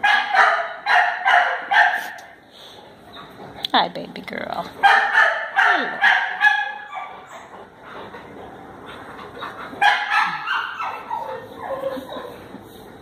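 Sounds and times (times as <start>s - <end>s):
dog yipping: 4.8s - 7.6s, 9.4s - 12.4s.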